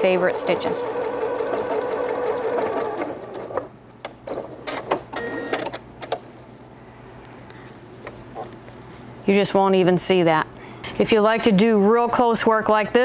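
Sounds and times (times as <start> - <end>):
sewing machine stitching: 0.0 - 3.7.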